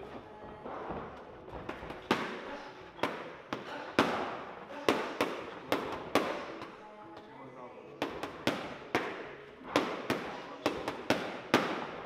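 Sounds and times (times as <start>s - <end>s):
boxing gloves smacking pads: 1.5s - 6.8s, 8.0s - 12.0s.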